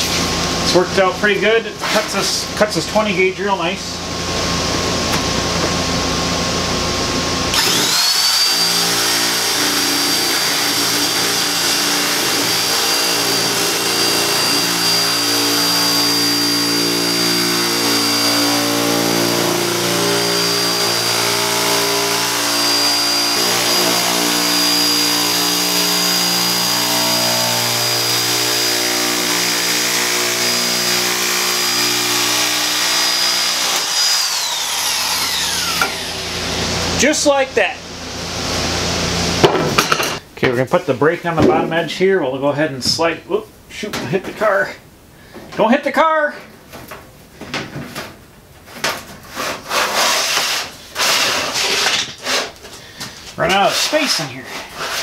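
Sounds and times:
electric metal shear motor whine: 0:05.8 - 0:37.0.

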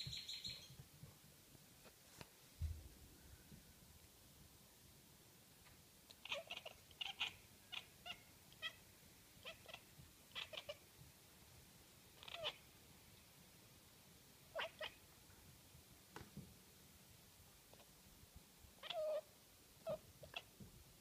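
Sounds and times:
cat chattering chirps: 0:06.2 - 0:08.8, 0:09.4 - 0:10.8, 0:12.2 - 0:12.6, 0:18.8 - 0:20.5.

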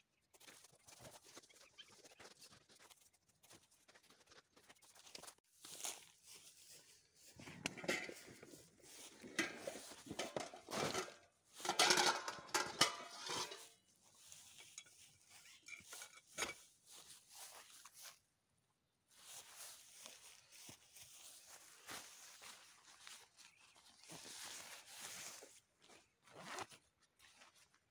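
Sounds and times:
metal items clinking: 0:07.4 - 0:16.7.

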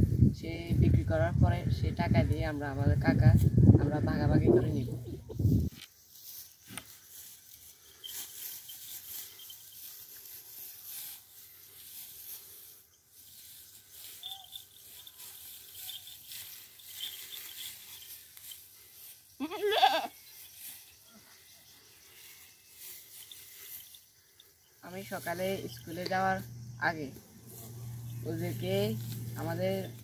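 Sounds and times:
young goat bleating: 0:19.4 - 0:20.2.

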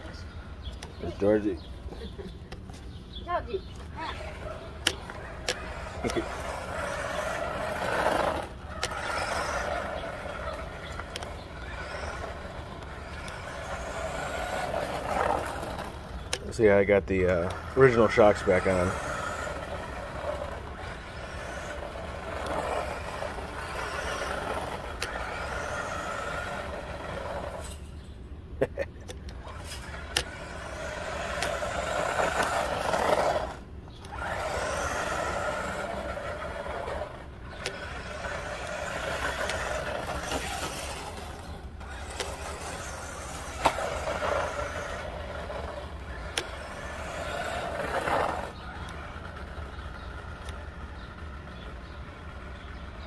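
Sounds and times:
toy truck electric motor whining: 0:03.3 - 0:28.0, 0:29.1 - 0:53.0.

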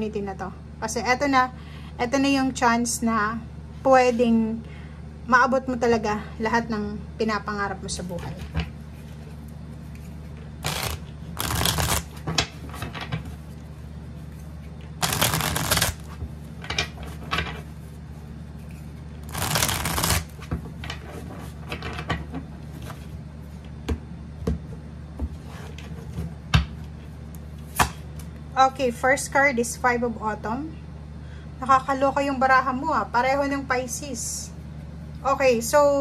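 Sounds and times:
steady low hum: 0:00.0 - 0:36.0
cards clicking and tapping: 0:10.6 - 0:12.1, 0:15.0 - 0:16.0
cards riffling: 0:10.6 - 0:12.2, 0:15.0 - 0:16.2, 0:19.2 - 0:20.4.

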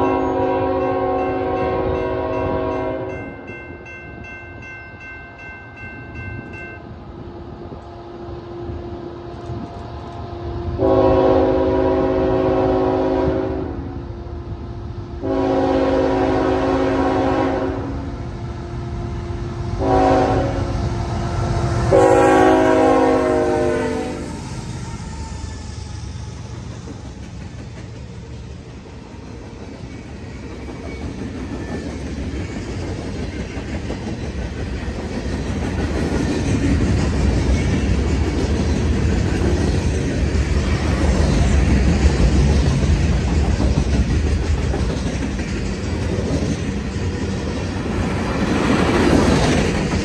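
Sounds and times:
locomotive air horn blasts: 0:00.0 - 0:03.2, 0:10.3 - 0:14.0, 0:15.2 - 0:18.2, 0:19.8 - 0:20.8, 0:21.8 - 0:24.3
train rumbling: 0:00.0 - 0:50.0.

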